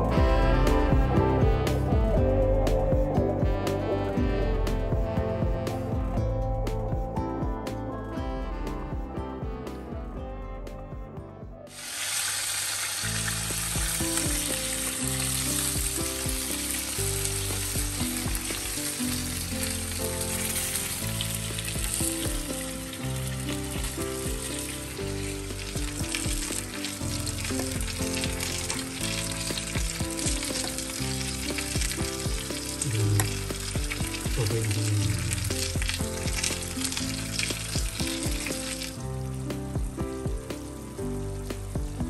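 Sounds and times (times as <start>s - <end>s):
background music: 0.0s - 42.0s
sauce sizzling in a frying pan: 11.7s - 42.0s.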